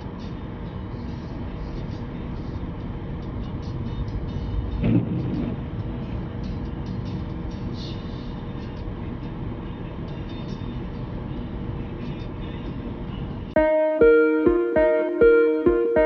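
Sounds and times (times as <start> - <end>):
car tyres and engine rumble: 0.0 - 13.6
plucked guitar music: 4.8 - 5.7, 13.6 - 16.0.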